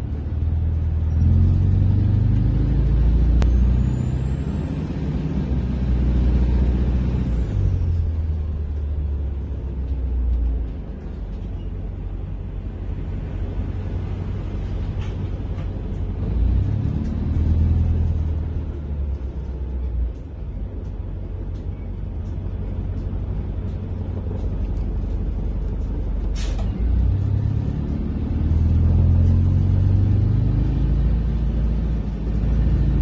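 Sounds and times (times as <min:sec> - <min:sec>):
bus diesel engine rumble: 0:00.0 - 0:33.0.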